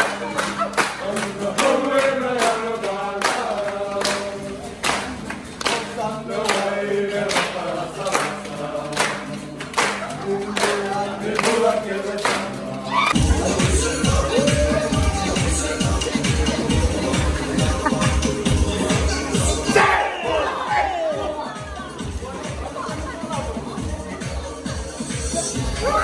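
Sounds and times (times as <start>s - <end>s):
hands clapping: 0.0s - 13.2s
group singing in harmony: 0.0s - 22.4s.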